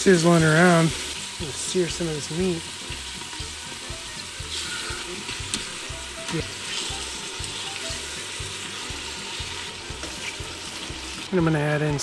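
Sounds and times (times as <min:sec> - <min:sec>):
garlic and onions sizzling in oil: 0:00.0 - 0:12.0.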